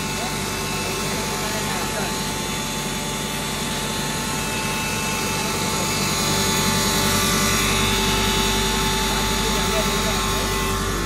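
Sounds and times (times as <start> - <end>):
flour grinder machine drone: 0.0 - 11.0
whining machine tones: 0.0 - 11.0.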